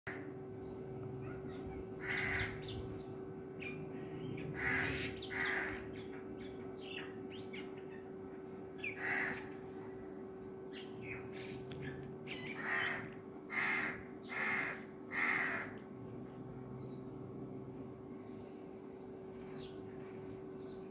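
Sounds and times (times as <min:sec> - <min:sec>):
steady hum: 0:00.1 - 0:20.9
crow cawing: 0:02.0 - 0:02.8, 0:04.5 - 0:06.0, 0:08.8 - 0:09.6, 0:12.5 - 0:15.8.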